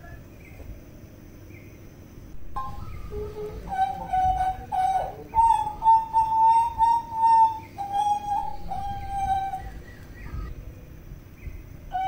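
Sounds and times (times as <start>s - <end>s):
bird whistling flute-like notes: 2.4s - 10.5s.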